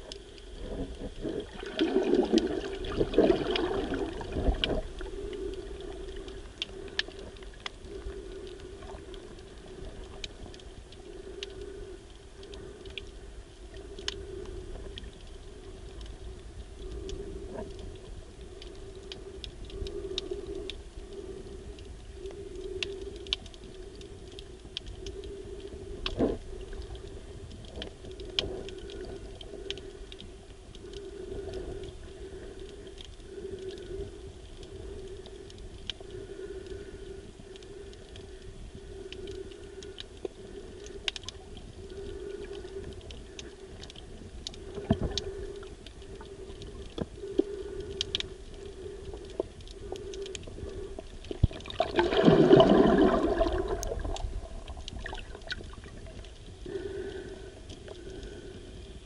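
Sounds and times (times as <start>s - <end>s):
underwater rushing: 0.0s - 11.9s, 38.9s - 59.0s
low underwater hum: 0.0s - 59.0s
underwater clicks and crackles: 0.0s - 59.0s.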